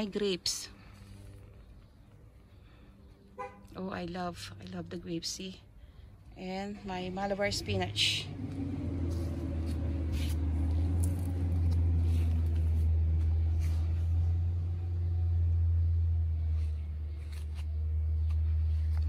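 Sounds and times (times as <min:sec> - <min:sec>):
low rumble: 0:05.8 - 0:19.0.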